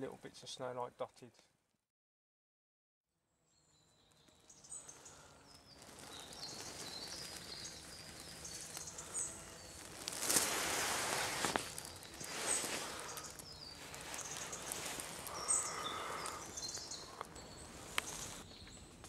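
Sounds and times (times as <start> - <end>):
faint outdoor hiss: 0.0 - 1.6, 3.2 - 19.0
birds chirping: 3.5 - 19.0
rustling: 5.1 - 18.8.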